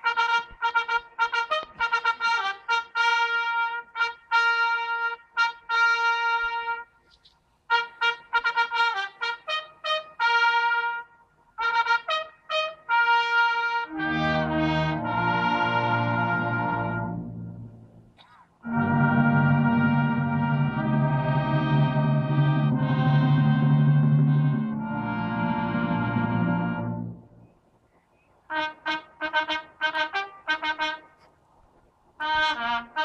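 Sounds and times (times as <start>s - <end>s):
brass band sustained chord: 0.0s - 6.9s, 7.7s - 17.8s, 18.6s - 27.4s, 28.5s - 31.2s, 32.2s - 33.0s
trumpets sounding military call: 0.0s - 7.0s, 7.7s - 17.7s, 18.6s - 27.4s, 28.5s - 31.2s, 32.2s - 33.0s.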